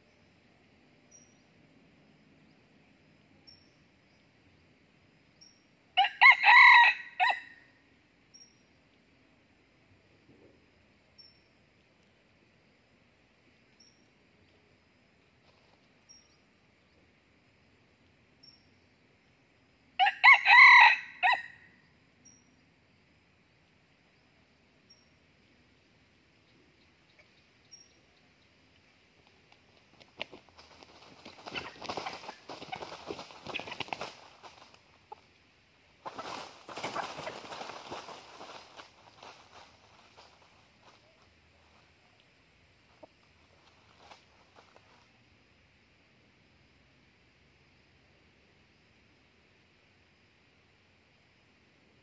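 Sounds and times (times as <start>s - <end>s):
rooster crowing: 6.0s - 7.6s, 20.0s - 21.6s.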